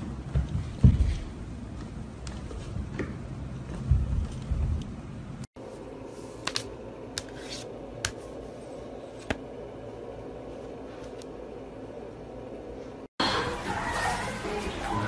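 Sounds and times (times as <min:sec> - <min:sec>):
low room hum: 0:00.0 - 0:13.1.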